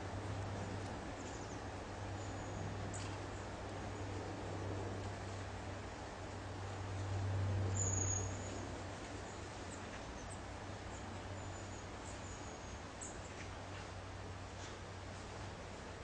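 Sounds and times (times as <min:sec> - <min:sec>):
low steady hum: 0:00.0 - 0:16.0
small bird chirping: 0:07.8 - 0:08.6.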